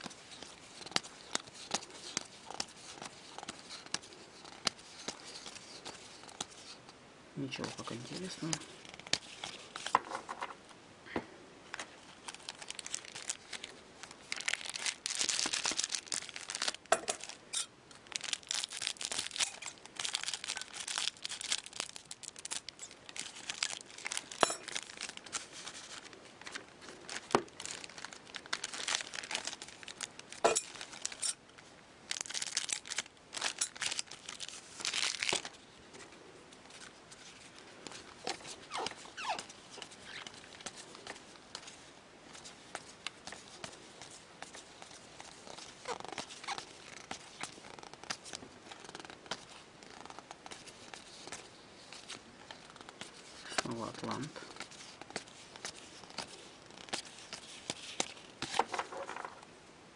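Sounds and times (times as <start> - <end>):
foil packs tearing and crinkling: 12.2 - 17.4, 18.0 - 31.4, 32.1 - 35.6.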